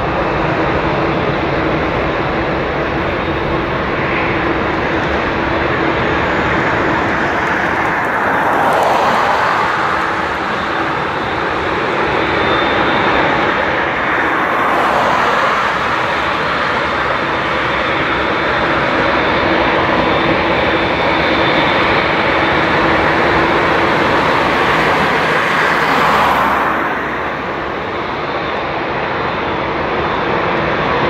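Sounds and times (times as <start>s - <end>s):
jet engines running: 0.0s - 31.0s.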